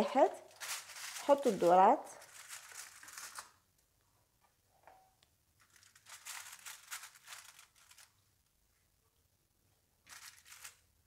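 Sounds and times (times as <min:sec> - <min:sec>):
aluminium foil crinkling: 0:00.0 - 0:03.7, 0:05.6 - 0:08.5, 0:10.0 - 0:11.0.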